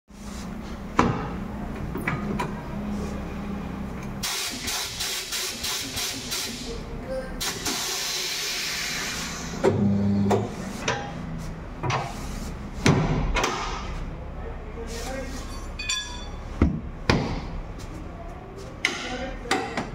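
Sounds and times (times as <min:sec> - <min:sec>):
compressed air hissing: 0:04.2 - 0:06.7, 0:07.4 - 0:09.6.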